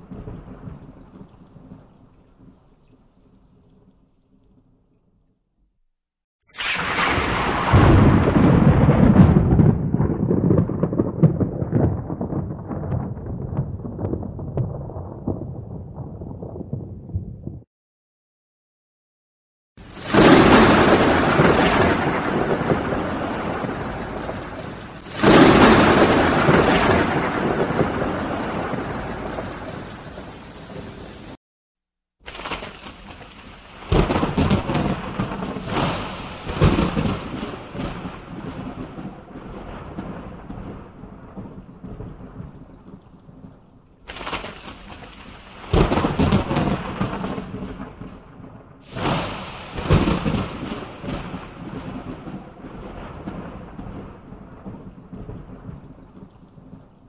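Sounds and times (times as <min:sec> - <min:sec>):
thunder rumbling: 0:00.0 - 0:02.7, 0:06.6 - 0:17.7, 0:19.8 - 0:31.4, 0:32.3 - 0:57.0
rain hissing: 0:19.8 - 0:31.4, 0:48.8 - 0:51.4.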